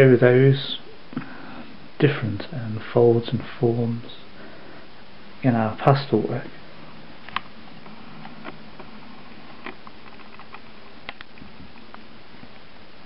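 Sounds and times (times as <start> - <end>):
steady low hiss: 0.0 - 13.0
faint clicks and taps: 7.2 - 12.7.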